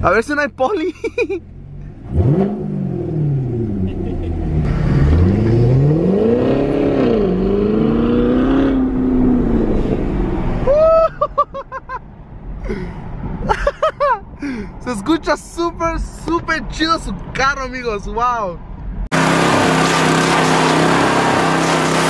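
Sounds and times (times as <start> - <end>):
car engine accelerating: 1.4 - 10.8, 19.0 - 22.0
person's voice: 14.8 - 18.6.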